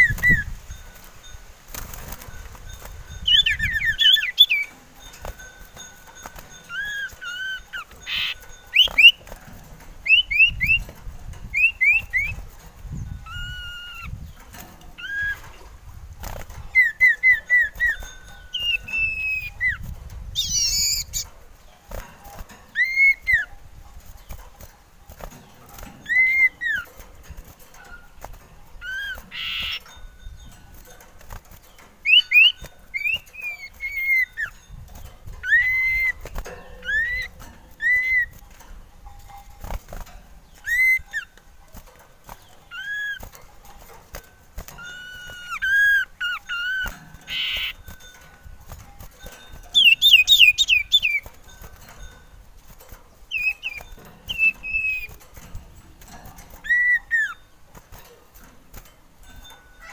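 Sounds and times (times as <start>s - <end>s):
bird whistling song: 0.0s - 0.9s, 3.1s - 5.4s, 6.3s - 9.4s, 10.0s - 15.6s, 16.4s - 21.3s, 22.7s - 23.5s, 26.0s - 26.9s, 28.8s - 30.5s, 31.7s - 34.7s, 35.3s - 38.4s, 40.4s - 41.4s, 42.7s - 43.3s, 44.8s - 47.8s, 49.7s - 51.3s, 53.3s - 55.2s, 56.6s - 57.5s.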